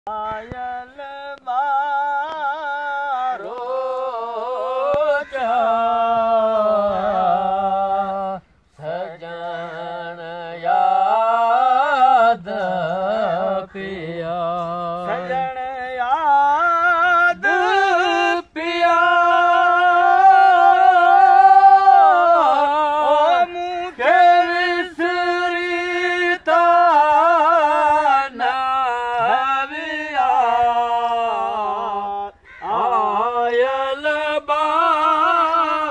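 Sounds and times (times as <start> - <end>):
men singing unaccompanied folk song: 0.1 - 35.9.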